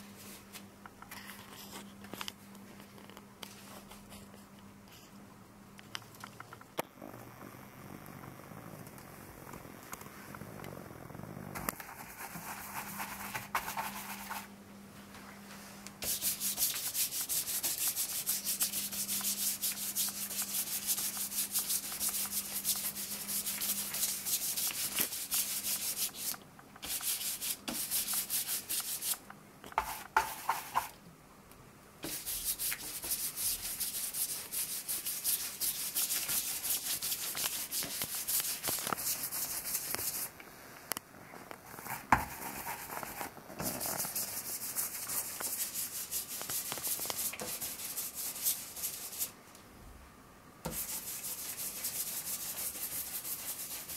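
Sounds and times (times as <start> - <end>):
cloth pad rubbing on stencil: 11.8 - 14.5, 16.0 - 29.2, 32.0 - 40.3, 41.8 - 49.3, 50.7 - 53.9.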